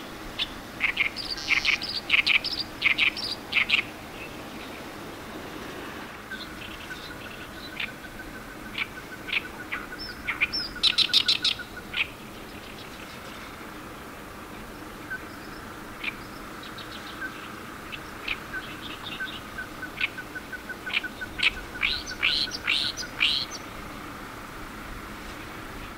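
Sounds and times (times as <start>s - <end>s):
reed warbler singing: 0.0s - 25.9s.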